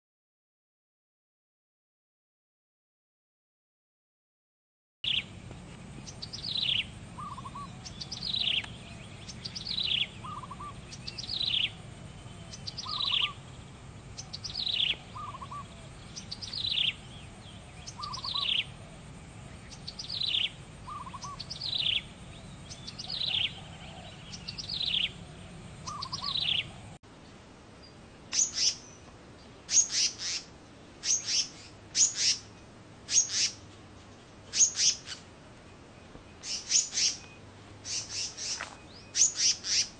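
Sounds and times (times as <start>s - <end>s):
songbird downward-sliding calls: 5.1s - 5.3s, 6.0s - 27.0s, 28.3s - 29.1s, 36.3s - 39.9s.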